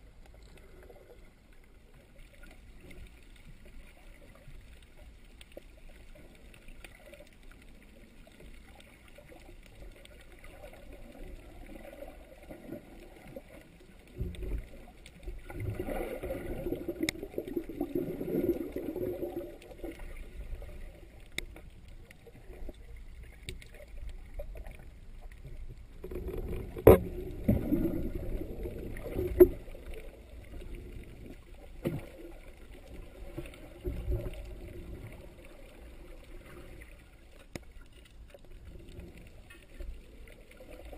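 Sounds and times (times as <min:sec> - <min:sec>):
muffled underwater sloshing: 0:00.0 - 0:40.9.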